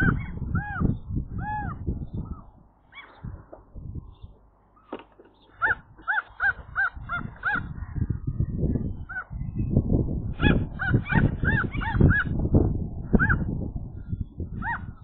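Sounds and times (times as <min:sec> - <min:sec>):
gull alarm calls: 0:00.0 - 0:03.4, 0:05.4 - 0:08.1, 0:10.4 - 0:12.4, 0:14.6 - 0:15.0.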